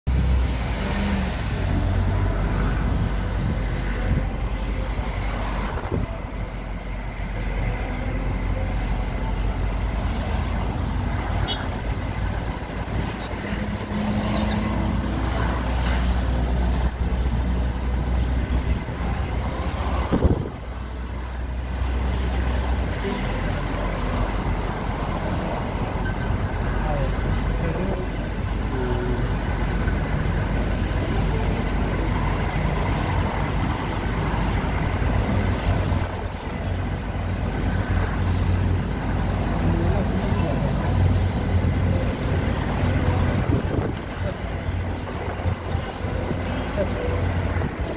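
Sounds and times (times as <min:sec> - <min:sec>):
car road and engine noise: 0:00.0 - 0:47.9
passing vehicle hum: 0:00.1 - 0:47.9.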